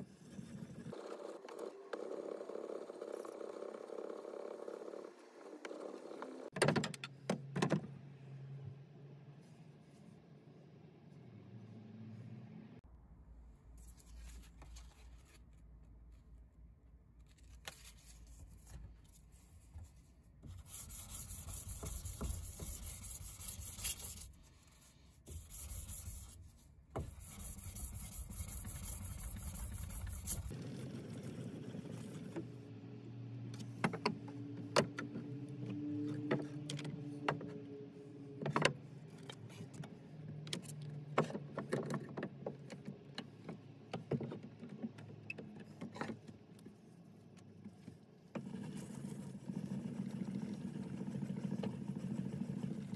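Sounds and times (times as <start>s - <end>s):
sandpaper rasping on metal: 20.6s - 24.4s, 25.3s - 30.5s.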